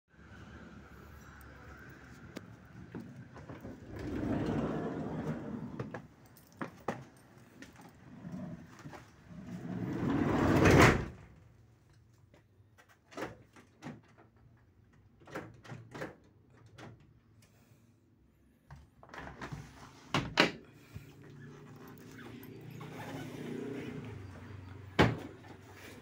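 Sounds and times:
sliding van door rolling: 0:03.5 - 0:05.9, 0:09.5 - 0:11.2.

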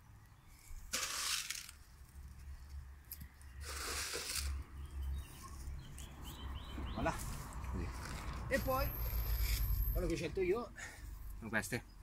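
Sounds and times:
granules scattering onto soil: 0:00.9 - 0:02.2.

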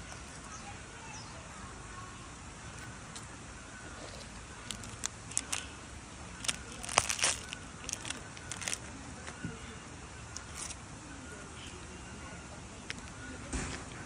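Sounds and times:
plastic wrapper crinkling: 0:04.6 - 0:05.7, 0:06.4 - 0:08.8.

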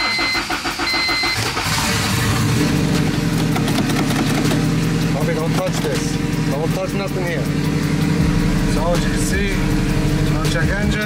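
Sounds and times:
engine starter cranking: 0:00.0 - 0:02.8
car engine idling: 0:00.0 - 0:11.0.

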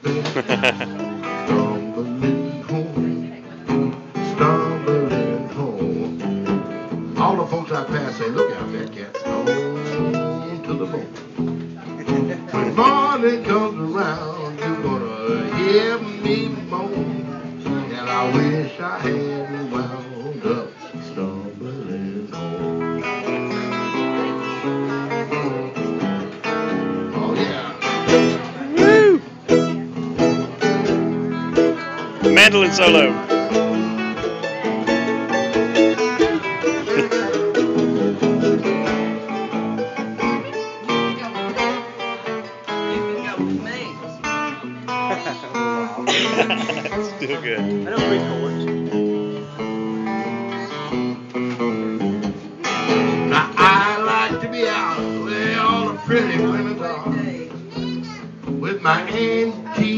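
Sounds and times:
electric guitar accompaniment: 0:00.0 - 0:59.9
mandolin solo: 0:08.3 - 0:10.6, 0:27.8 - 0:43.3.

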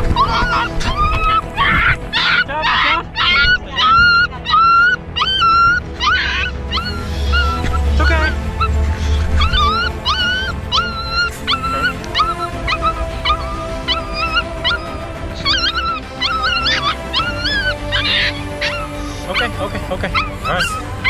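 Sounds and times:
background music: 0:00.0 - 0:21.0
puppy whimpering and yelping: 0:00.2 - 0:08.7, 0:09.4 - 0:21.0.

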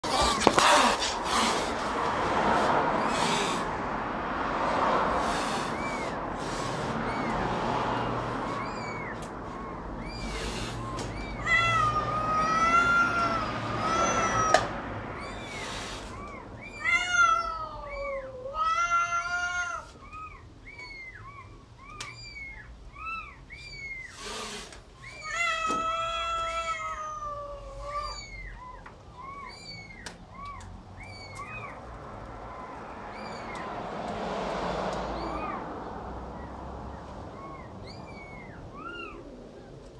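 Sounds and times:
cat hissing: 0:00.0 - 0:04.0, 0:05.0 - 0:20.0, 0:23.6 - 0:28.4
cat mewing high: 0:05.4 - 0:31.8
cat yowling: 0:06.9 - 0:33.9, 0:35.1 - 0:35.7, 0:37.3 - 0:39.8.

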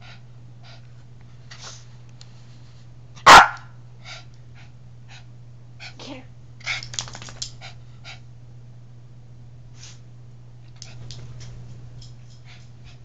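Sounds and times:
small dog barking sharply: 0:03.2 - 0:03.8.

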